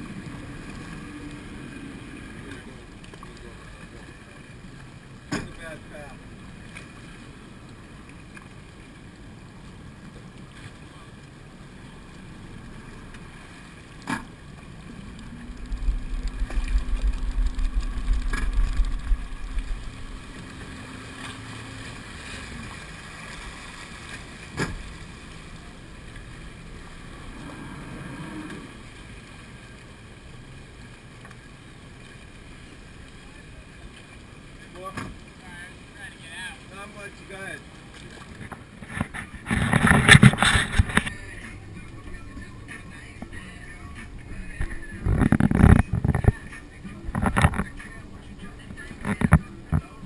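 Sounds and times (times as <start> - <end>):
water noise: 0.0 - 50.0
steady low hum: 14.4 - 20.7
wind rumble on microphone: 14.6 - 21.1, 38.4 - 50.0.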